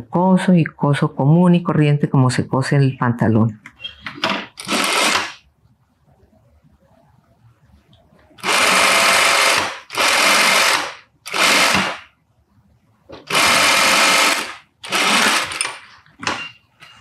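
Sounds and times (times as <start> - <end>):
sewing machine stitching: 4.2 - 5.4, 8.4 - 12.0, 13.3 - 15.8.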